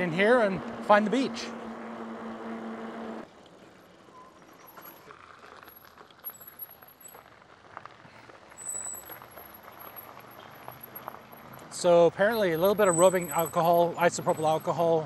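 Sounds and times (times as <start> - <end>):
electric motor humming: 0.0 - 3.2
disc brakes squealing: 0.0 - 7.4, 8.1 - 15.0.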